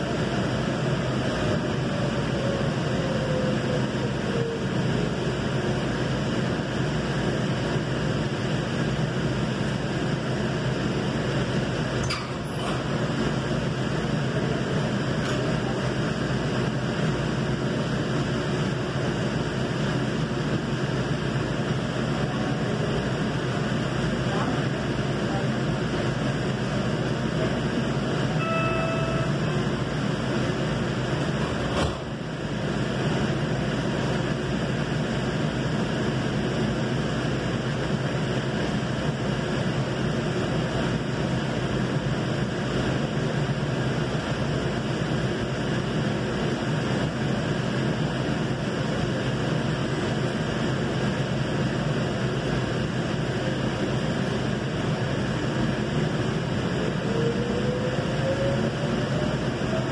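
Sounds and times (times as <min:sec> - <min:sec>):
light rail car rumble: 0:00.0 - 0:59.9
short high tone: 0:28.3 - 0:29.8.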